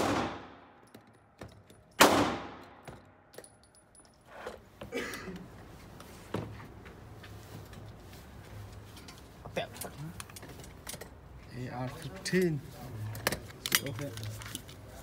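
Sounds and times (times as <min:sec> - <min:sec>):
gunshot echoing indoors: 0:00.0 - 0:00.7, 0:02.0 - 0:02.8.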